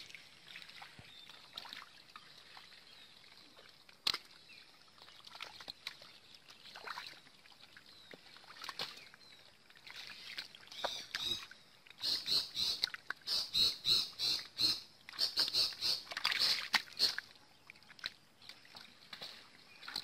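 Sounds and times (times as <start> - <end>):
wet slaps and splashes: 4.0 - 4.3, 15.1 - 17.2
hands squelching in wet mud: 15.1 - 20.0.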